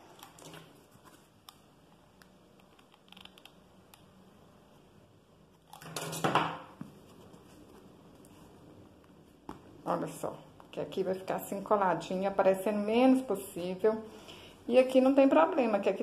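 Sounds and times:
hands handling fabric: 6.8s - 9.7s
fabric and card rustling: 6.8s - 10.2s.

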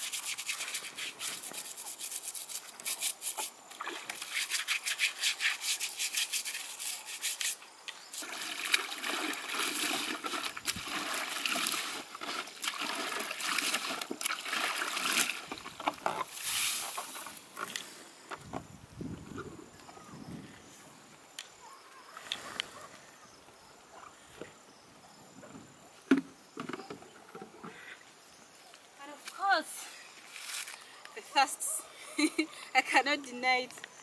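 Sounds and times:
water rushing from tipped basin: 8.1s - 17.2s
water dripping and splashing: 8.2s - 16.1s.

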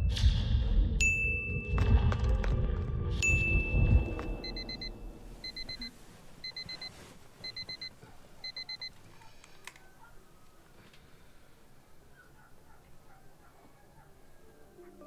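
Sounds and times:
phone alarm beeping: 3.2s - 9.0s.

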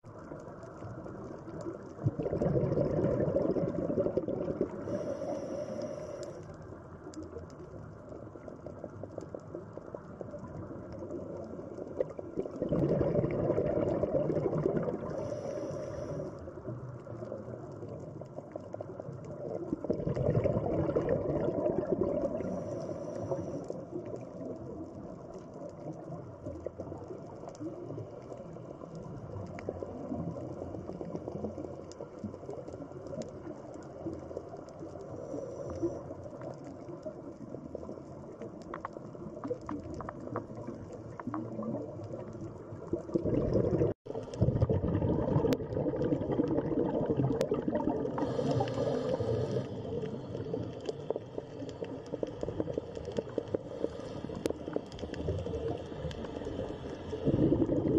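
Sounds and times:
bubbles rising underwater: 0.0s - 5.5s, 7.1s - 57.9s
low underwater hiss: 0.0s - 57.9s
faint clicks: 4.9s - 12.6s, 22.4s - 43.1s, 48.2s - 57.3s.

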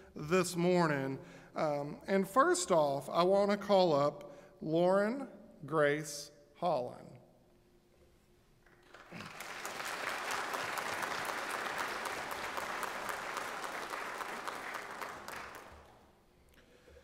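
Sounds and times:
congregation applauding: 8.7s - 16.2s.

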